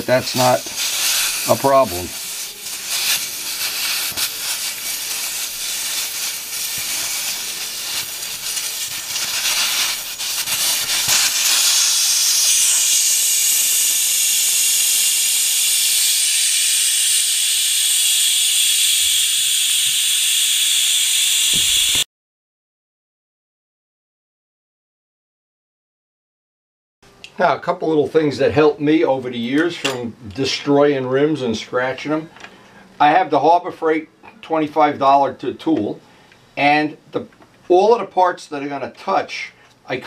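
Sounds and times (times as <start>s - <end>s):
air hissing out of tire valve: 0.0s - 22.0s.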